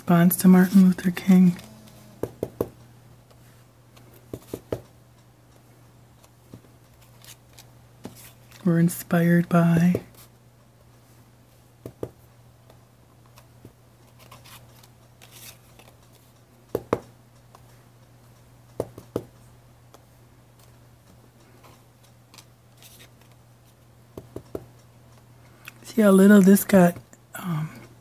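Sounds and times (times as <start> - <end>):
low steady hum: 0.0 - 28.0
rubber stamp taps: 2.2 - 2.8.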